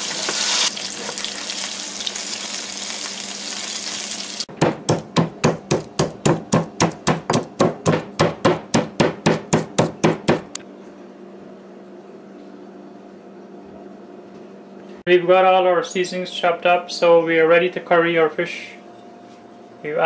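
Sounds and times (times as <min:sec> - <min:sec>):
stone pestle pounding in mortar: 0:04.5 - 0:10.6.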